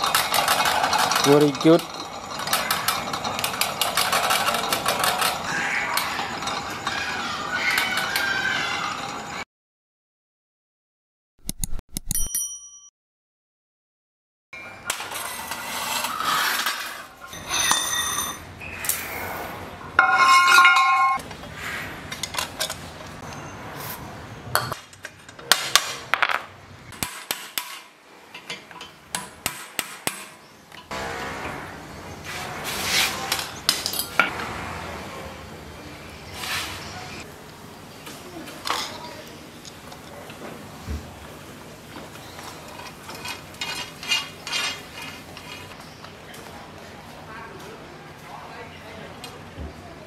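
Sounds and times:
metal rubbing: 15.0 - 21.2, 30.9 - 35.0, 42.4 - 45.8.

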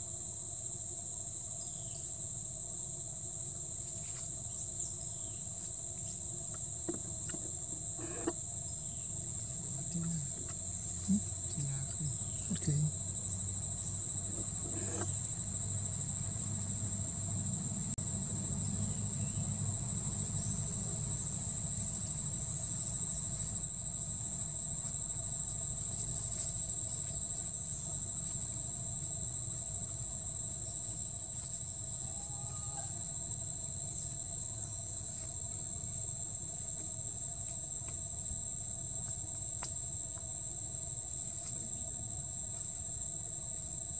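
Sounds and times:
insects droning in chorus: 0.0 - 43.9.

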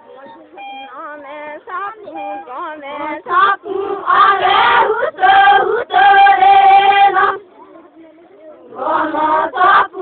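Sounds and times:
women singing without instruments: 2.5 - 7.4.

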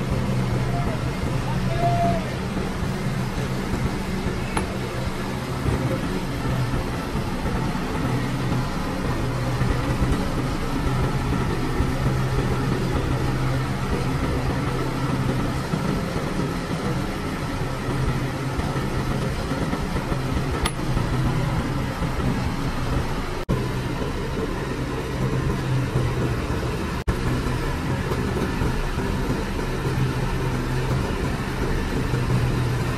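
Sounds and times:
diesel engine idling: 0.0 - 32.9.

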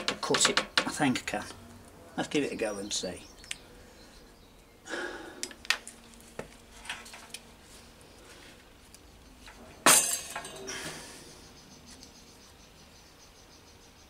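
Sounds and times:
metal tools clinking on wood: 9.4 - 10.7
loud metallic clank: 9.8 - 10.6.

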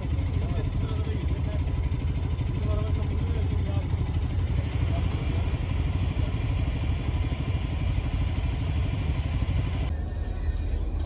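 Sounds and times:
low pulsing engine rumble: 0.0 - 11.0.

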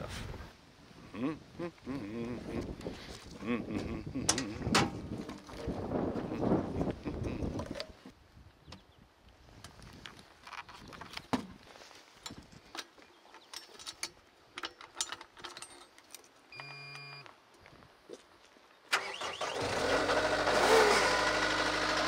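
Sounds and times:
diesel engine cranking and running: 19.0 - 22.0.

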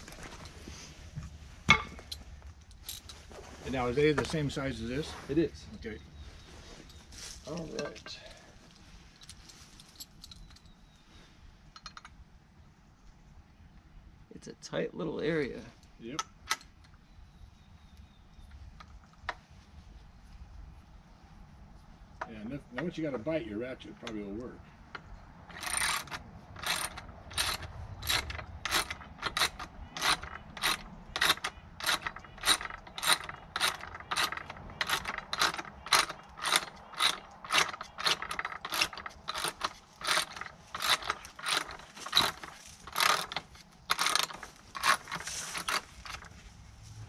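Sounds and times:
hand ratchet clicking: 25.5 - 46.3.

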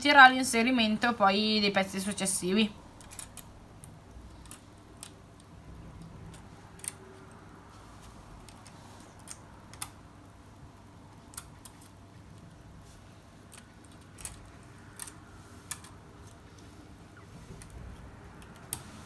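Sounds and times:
plastic parts clicking: 3.0 - 7.4, 13.4 - 16.6.

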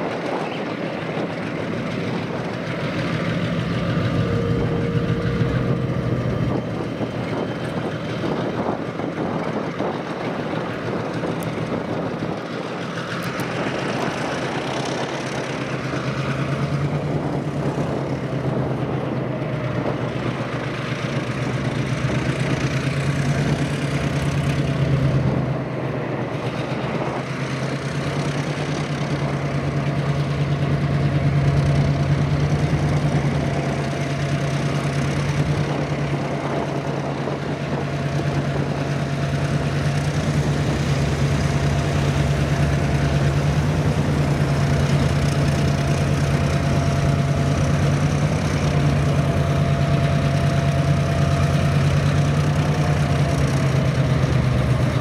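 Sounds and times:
locomotive engine drone: 0.0 - 55.0
thin whine: 1.8 - 8.9.

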